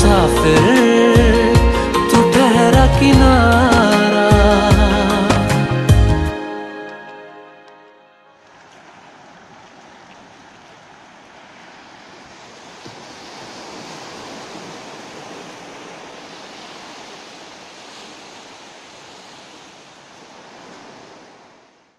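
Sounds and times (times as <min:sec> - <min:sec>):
surf on rocky shore: 0:08.4 - 0:21.9.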